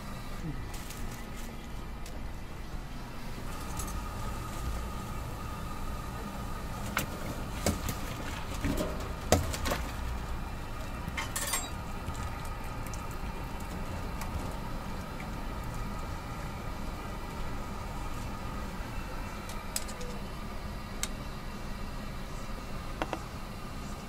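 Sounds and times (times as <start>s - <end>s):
kitchen hum: 3.3s - 21.4s
metal basket clinking against tank: 11.2s - 11.8s.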